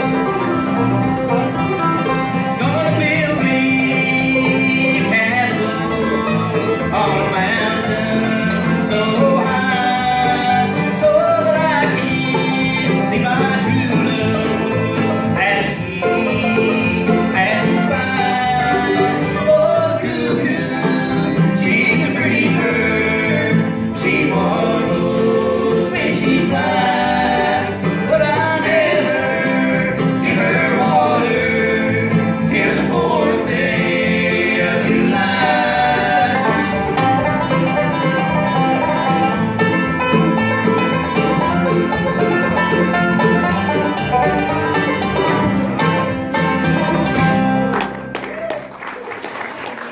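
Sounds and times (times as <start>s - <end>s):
bluegrass band playing: 0.0s - 49.9s
man singing: 2.5s - 37.2s.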